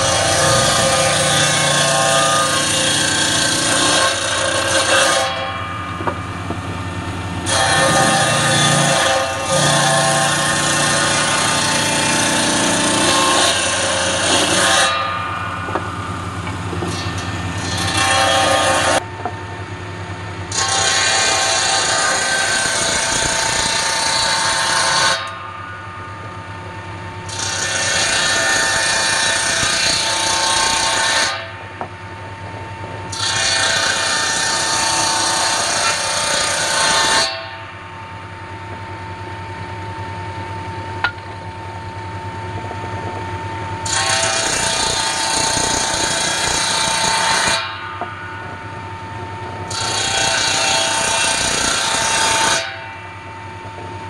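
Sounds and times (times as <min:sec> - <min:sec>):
table saw cutting wood: 0:00.0 - 0:19.0, 0:20.5 - 0:25.4, 0:27.2 - 0:31.5, 0:33.1 - 0:37.6, 0:43.8 - 0:48.6, 0:49.6 - 0:53.0.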